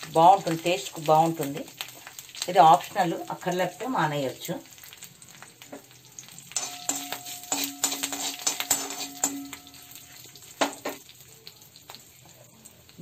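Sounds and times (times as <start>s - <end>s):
spices sizzling in hot oil: 0.0s - 13.0s
spoon scraping metal pan: 6.5s - 10.8s.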